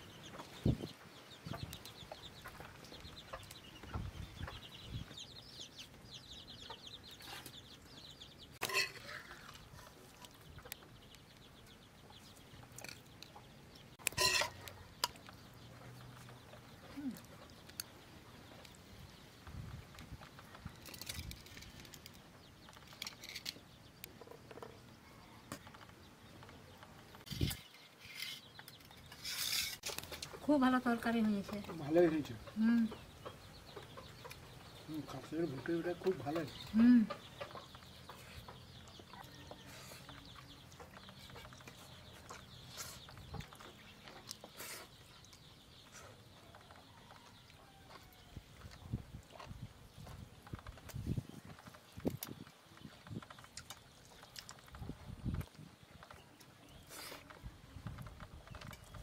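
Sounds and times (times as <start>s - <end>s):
chickens clucking: 0.0s - 23.0s, 23.9s - 59.0s
spoon clinking and scraping bowls: 8.6s - 9.2s, 14.1s - 15.2s
people chewing: 36.6s - 59.0s.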